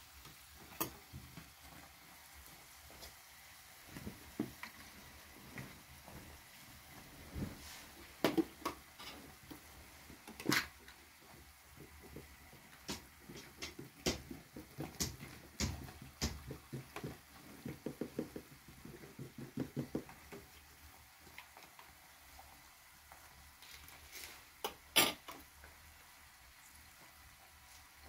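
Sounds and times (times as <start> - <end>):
hands patting pastry dough: 11.8 - 20.6.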